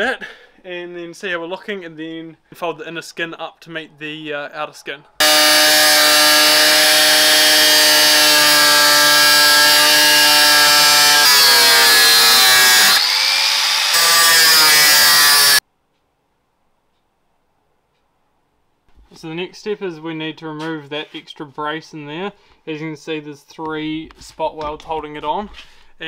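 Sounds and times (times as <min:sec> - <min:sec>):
angle grinder cutting sheet metal: 0:05.2 - 0:15.6.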